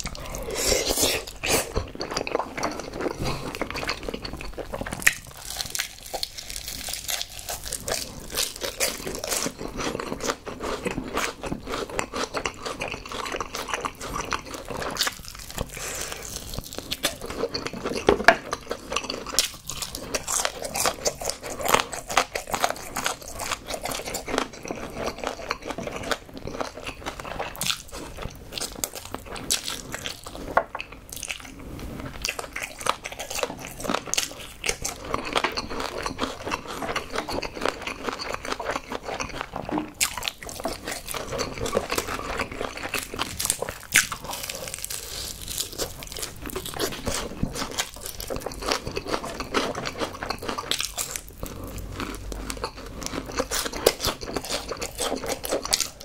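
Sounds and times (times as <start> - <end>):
crunchy chewing of fried chicken: 0.0 - 56.0.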